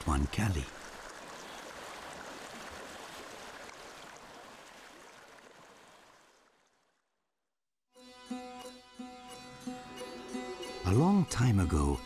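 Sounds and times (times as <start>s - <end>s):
river water rushing: 0.0s - 6.5s.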